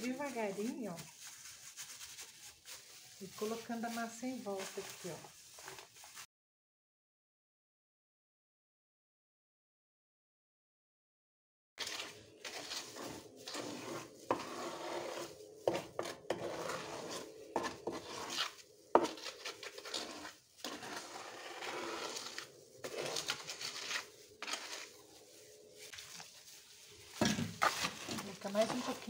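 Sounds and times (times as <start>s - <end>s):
trowel scraping wet mortar: 11.8s - 25.2s, 27.2s - 29.0s.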